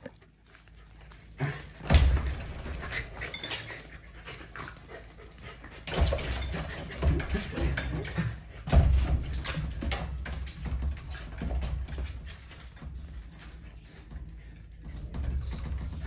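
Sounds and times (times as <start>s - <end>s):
dog panting: 0.0s - 9.2s.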